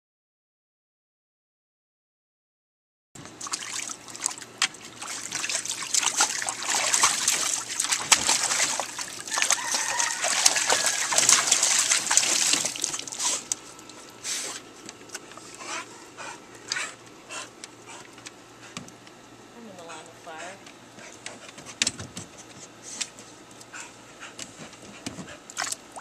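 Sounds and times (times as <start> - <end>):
dog splashing water: 3.3 - 14.6, 25.4 - 26.0
water dripping: 3.4 - 14.0.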